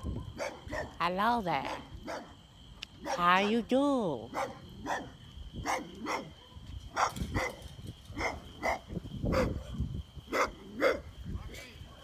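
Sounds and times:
dog barking: 0:00.1 - 0:01.0, 0:01.6 - 0:02.4, 0:03.0 - 0:03.6, 0:04.3 - 0:11.1.

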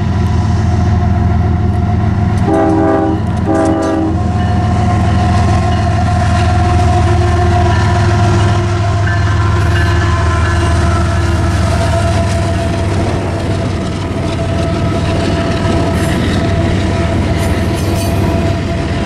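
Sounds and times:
freight train running by: 0:00.0 - 0:19.0
locomotive horn blasts: 0:02.4 - 0:05.2, 0:06.1 - 0:12.8.

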